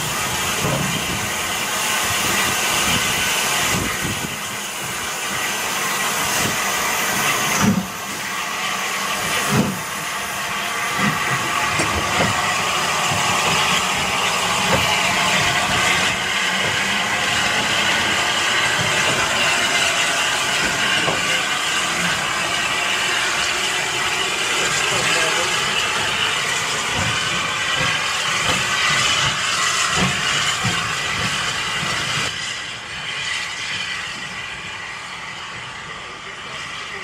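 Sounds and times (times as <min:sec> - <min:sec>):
steam hissing: 0:00.0 - 0:37.0.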